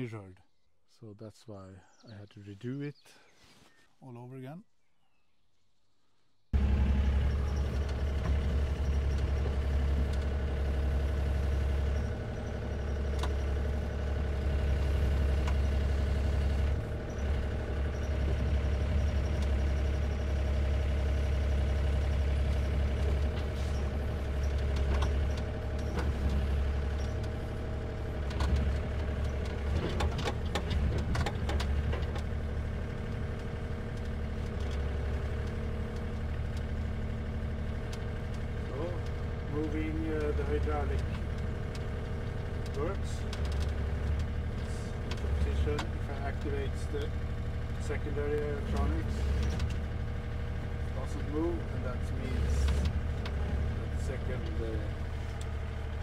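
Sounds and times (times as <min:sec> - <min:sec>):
excavator diesel engine idling: 0:06.6 - 0:56.0
sharp clicks and knocks: 0:22.9 - 0:27.4, 0:28.2 - 0:32.4, 0:40.1 - 0:46.4.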